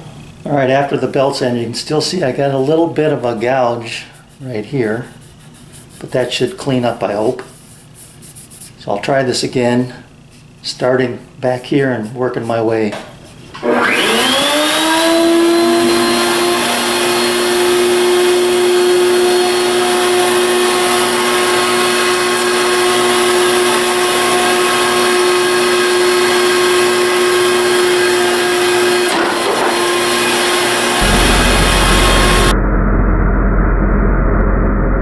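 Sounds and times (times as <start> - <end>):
router motor whine: 13.6 - 22.9
deep rumble: 31.0 - 35.0.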